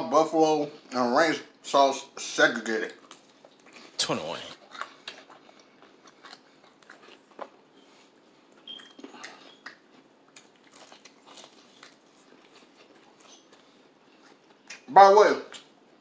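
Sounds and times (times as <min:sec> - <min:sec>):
crunching of fried chicken: 0:02.8 - 0:07.7, 0:08.6 - 0:14.9.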